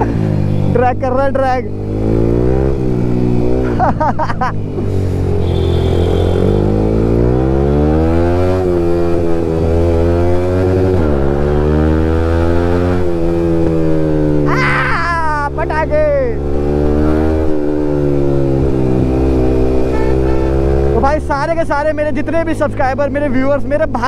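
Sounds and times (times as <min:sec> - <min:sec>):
motorcycle engine shifting gears: 0:01.6 - 0:14.5, 0:15.3 - 0:21.2.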